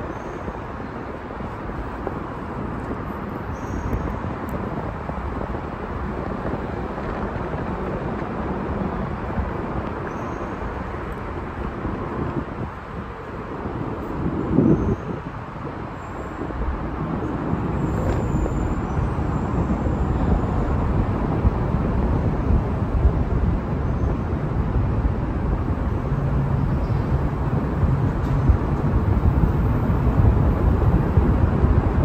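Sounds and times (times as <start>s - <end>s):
road traffic rumble: 0.0s - 32.0s.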